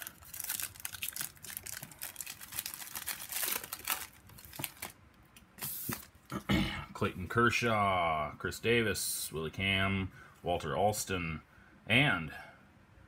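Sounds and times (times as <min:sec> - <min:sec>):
foil wrapper crinkling: 0:00.0 - 0:05.0.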